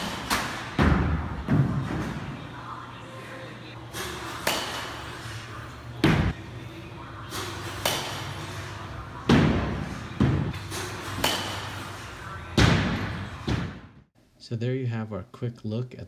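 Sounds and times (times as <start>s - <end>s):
metal bat hitting balls: 4.3s - 5.0s, 7.7s - 8.4s, 9.3s - 11.8s
balls thudding into netting: 9.2s - 11.8s.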